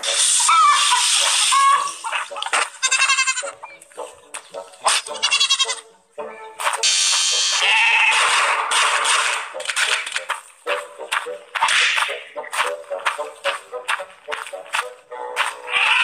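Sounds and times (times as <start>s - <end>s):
sheep bleating: 2.6s - 3.6s, 5.0s - 5.9s, 7.5s - 8.3s, 15.6s - 16.0s
orchestral music: 3.1s - 16.0s.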